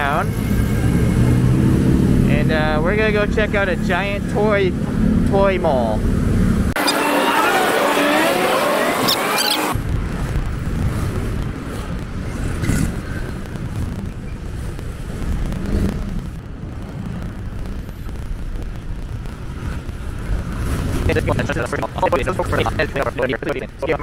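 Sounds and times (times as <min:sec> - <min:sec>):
passing traffic: 0:00.0 - 0:24.0
wind buffeting microphone: 0:09.7 - 0:24.0.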